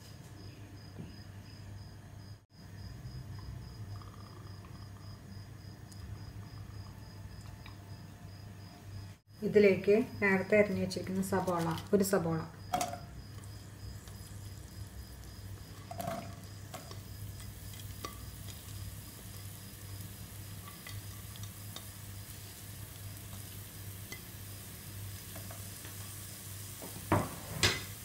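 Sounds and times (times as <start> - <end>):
onions sizzling in oil: 9.6 - 28.0.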